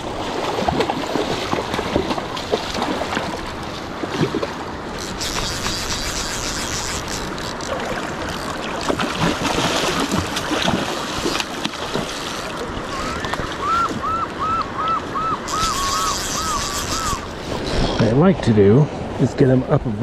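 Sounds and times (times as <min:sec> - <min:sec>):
river current rushing and lapping: 0:00.0 - 0:20.0
wind on microphone: 0:12.8 - 0:19.9.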